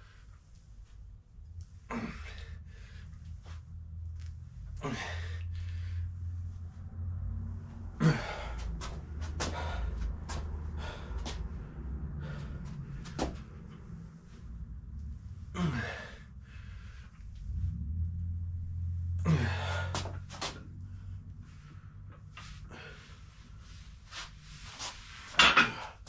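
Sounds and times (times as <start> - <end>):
steady low hum: 0.0 - 26.0
gym equipment clunking: 25.4 - 25.9.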